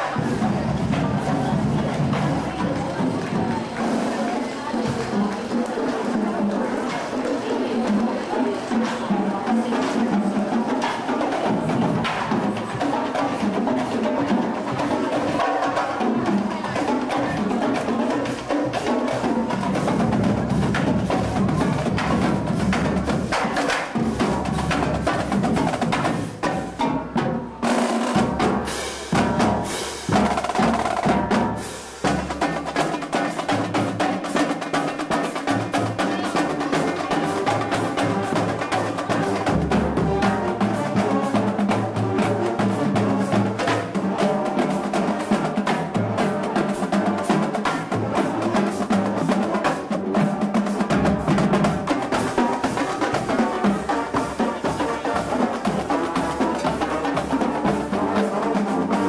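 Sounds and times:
snare and bass drums: 0:00.0 - 0:07.2, 0:07.8 - 0:59.0
brass instruments holding notes: 0:27.6 - 0:59.0.

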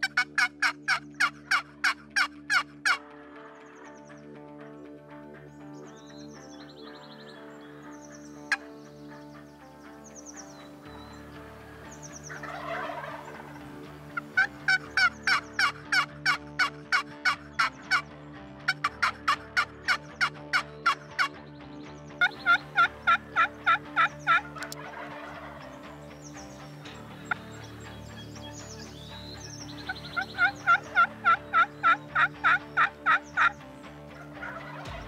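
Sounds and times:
soft background music: 0:00.0 - 0:35.0
turkey call hen yelps: 0:12.4 - 0:13.6, 0:22.4 - 0:25.6, 0:30.2 - 0:33.5, 0:34.2 - 0:34.8.

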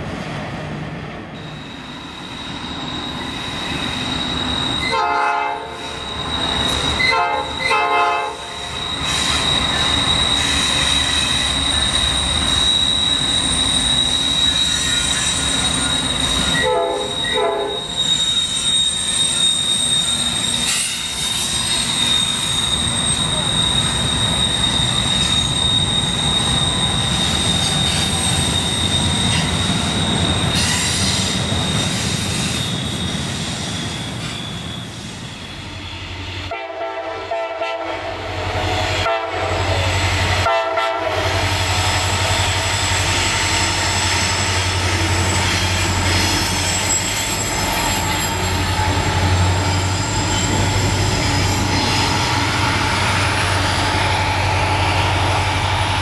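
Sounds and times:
freight train rumbling: 0:00.0 - 0:56.0
high-pitched wheel squeal: 0:01.4 - 0:36.5, 0:41.2 - 0:56.0
locomotive air horn blasts: 0:04.8 - 0:05.9, 0:07.0 - 0:08.7, 0:16.5 - 0:17.9, 0:36.5 - 0:39.8, 0:40.4 - 0:41.4.

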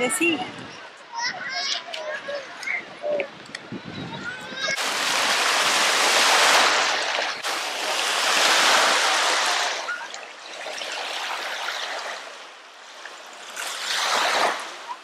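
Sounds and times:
small waves washing on sand: 0:04.8 - 0:15.0.

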